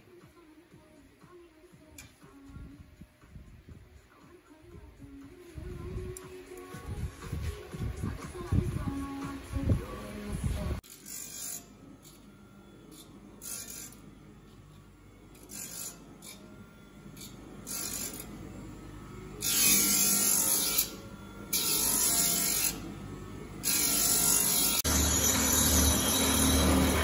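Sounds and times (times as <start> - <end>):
grinding wheel on steel blades: 10.8 - 27.0.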